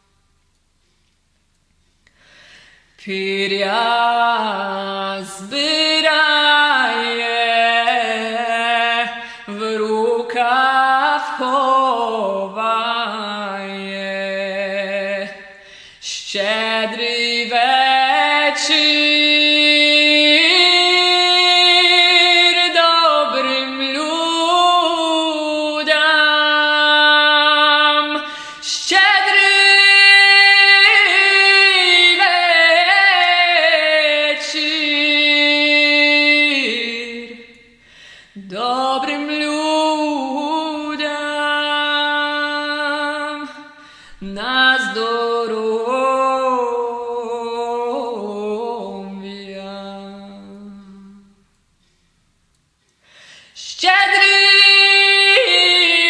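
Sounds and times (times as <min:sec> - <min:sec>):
breaths between phrases: 0:02.1 - 0:03.0, 0:15.5 - 0:16.0, 0:37.8 - 0:38.4, 0:43.8 - 0:44.2, 0:53.0 - 0:53.6.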